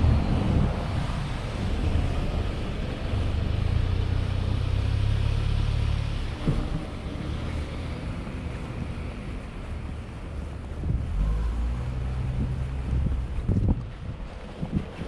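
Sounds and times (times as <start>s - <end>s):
passing vehicle rumble: 0.0s - 15.0s.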